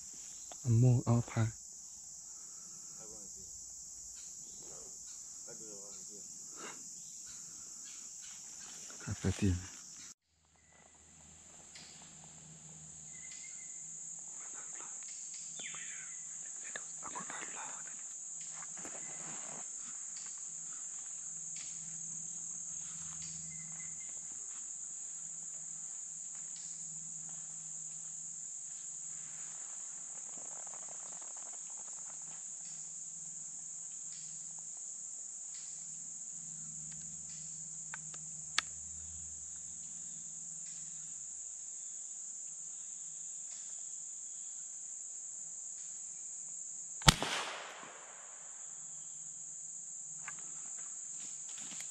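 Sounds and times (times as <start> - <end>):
insect chorus drone: 0.0 - 51.9
small sharp click: 37.9 - 38.7, 47.0 - 47.6
rifle shot: 47.0 - 48.6.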